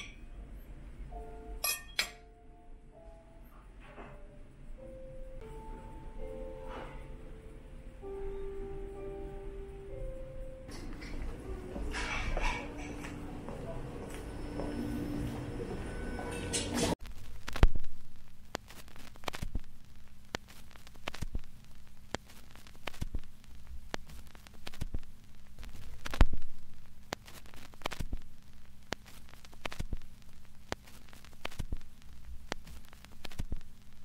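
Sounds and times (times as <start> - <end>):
crackles and clicks: 16.9 - 34.0.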